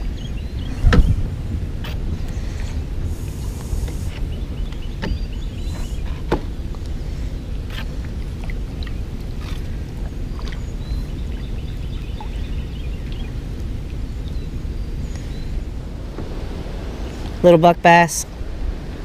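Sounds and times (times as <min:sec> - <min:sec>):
steady low rumble: 0:00.0 - 0:19.0
paddle strokes through water: 0:00.6 - 0:17.4
paddle knocks and drips: 0:03.8 - 0:07.0, 0:07.7 - 0:14.4, 0:16.0 - 0:16.5.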